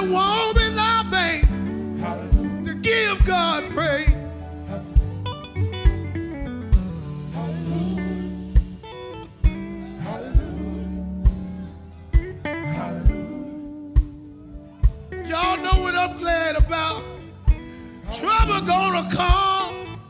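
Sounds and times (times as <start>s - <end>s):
person singing: 0.0s - 5.6s, 6.8s - 20.0s
drum kit: 0.0s - 19.9s
electric bass: 0.0s - 20.0s
electric guitar: 0.0s - 20.0s
keyboard: 0.0s - 20.0s.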